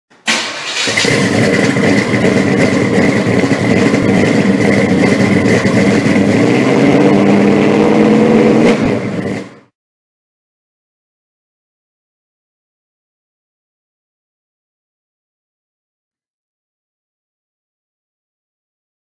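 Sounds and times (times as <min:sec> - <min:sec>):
car engine running: 0:00.3 - 0:09.7.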